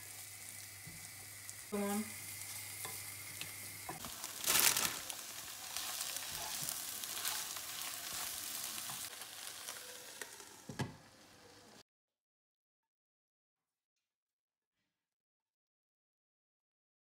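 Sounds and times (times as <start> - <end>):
vegetables sizzling in a frying pan: 0.0 - 11.8.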